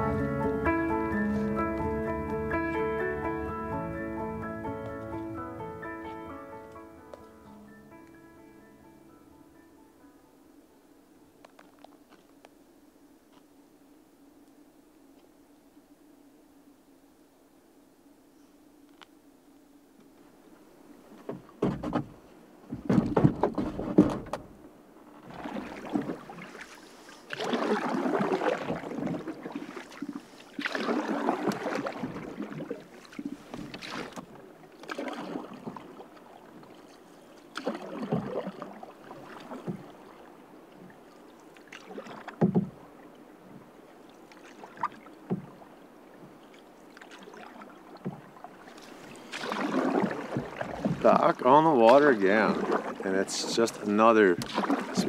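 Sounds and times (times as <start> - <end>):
paddle strokes splashing water: 0.0 - 5.6, 20.2 - 55.0.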